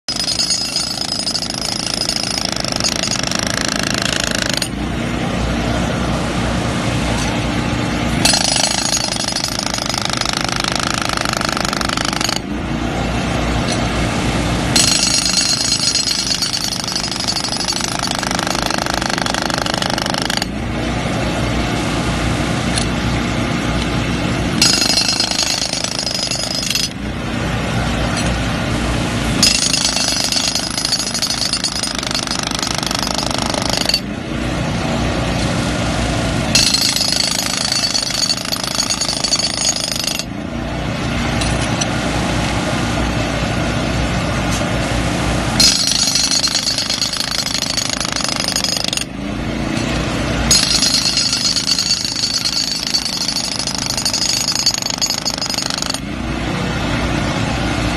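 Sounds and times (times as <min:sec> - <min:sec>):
hydraulic breaker hammering concrete: 0:00.1 - 0:04.8, 0:08.2 - 0:12.5, 0:14.7 - 0:20.6, 0:24.6 - 0:27.0, 0:29.4 - 0:34.1, 0:36.5 - 0:40.3, 0:45.6 - 0:56.1.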